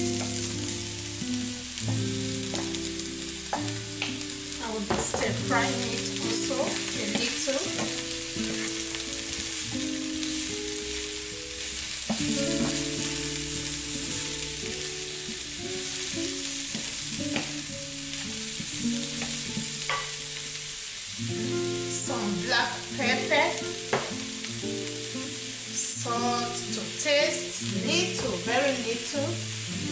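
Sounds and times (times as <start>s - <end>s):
vegetables sizzling in oil: 0.0s - 29.9s
wooden spoon scraping pan: 8.4s - 8.9s.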